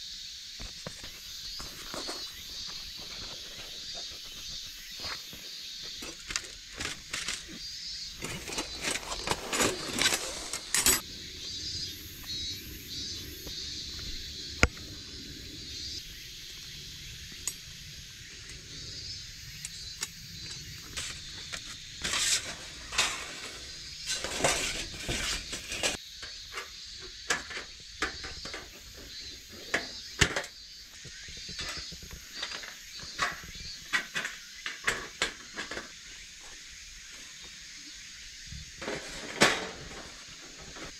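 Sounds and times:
insects chirping: 0.0 - 40.9
metal parts scraping and clinking: 6.0 - 7.6, 8.2 - 11.0, 20.5 - 26.0.

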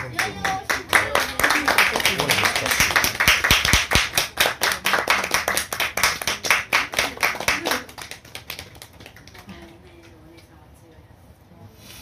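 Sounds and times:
people clapping: 0.0 - 10.2.

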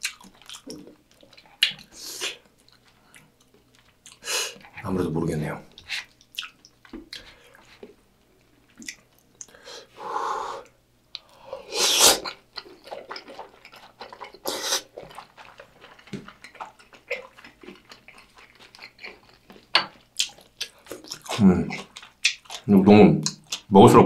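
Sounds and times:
wet chewing clicks: 0.0 - 4.8, 5.7 - 8.0, 8.7 - 9.6, 12.2 - 23.7
person slurping noodles: 11.5 - 16.0.

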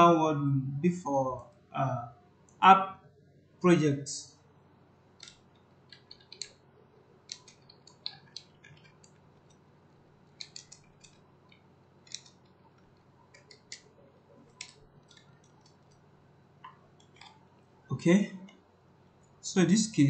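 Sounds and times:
computer keyboard typing: 5.2 - 6.6, 7.3 - 9.6, 10.3 - 16.0.

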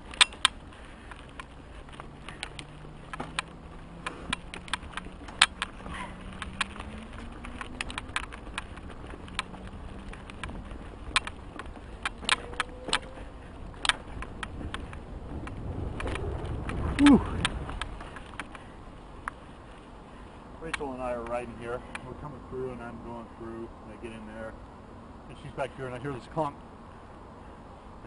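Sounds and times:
bike clicks and knocks over bumps: 0.0 - 19.8, 20.6 - 22.1
tyres rumbling: 0.0 - 21.6
wind: 0.0 - 28.0.

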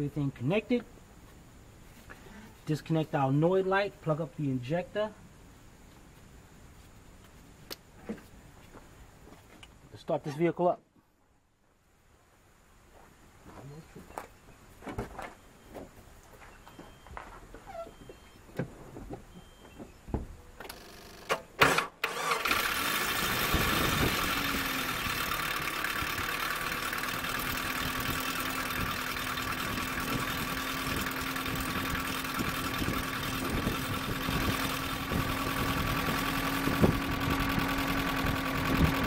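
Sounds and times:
engine cranking: 20.7 - 39.0
engine idling with rattle: 22.1 - 39.0.

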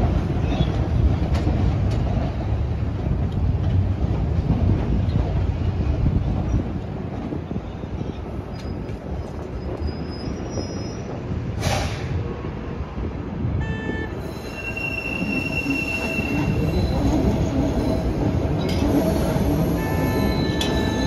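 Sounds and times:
train wheels rumbling on rails: 0.0 - 21.0
high wheel squeals: 14.2 - 21.0.

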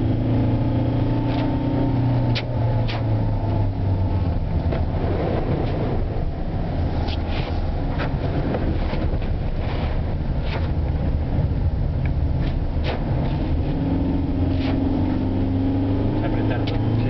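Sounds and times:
engine and tyre rumble: 0.0 - 17.0
water splashing on windscreen: 3.8 - 13.8.

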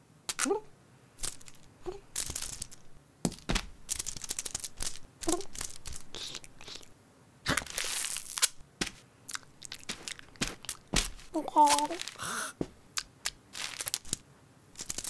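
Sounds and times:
sticky tape tearing and peeling: 3.9 - 6.8, 7.5 - 9.0, 14.8 - 15.0.

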